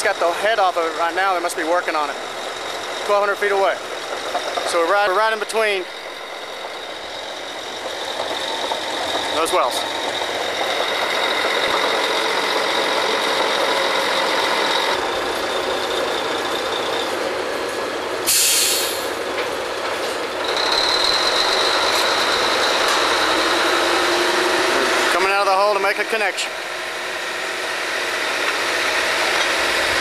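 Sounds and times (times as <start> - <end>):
drilling rig machinery whine: 0.0 - 30.0
short loud hiss: 18.3 - 19.2.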